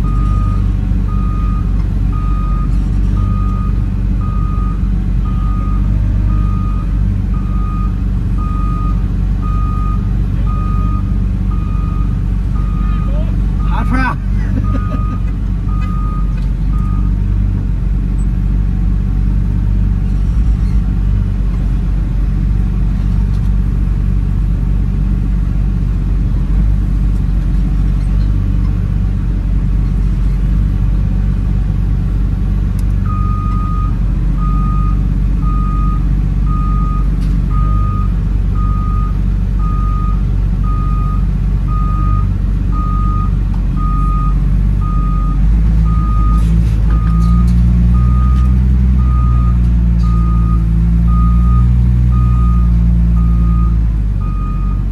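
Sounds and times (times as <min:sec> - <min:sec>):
reversing alarm beeping: 0:00.0 - 0:14.0, 0:14.6 - 0:17.2, 0:33.1 - 0:54.8
diesel engine running: 0:00.0 - 0:54.9.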